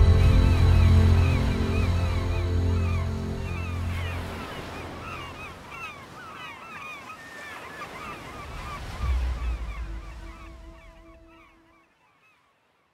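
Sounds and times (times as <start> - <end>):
low rumble: 0.0 - 4.4, 8.6 - 11.5
music: 0.0 - 5.1
flock of birds calling: 0.0 - 12.4.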